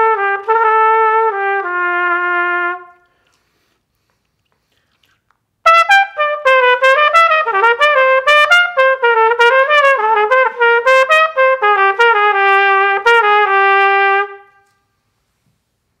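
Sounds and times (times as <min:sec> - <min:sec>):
solo cornet playing: 0:00.0 - 0:03.0, 0:05.6 - 0:14.8.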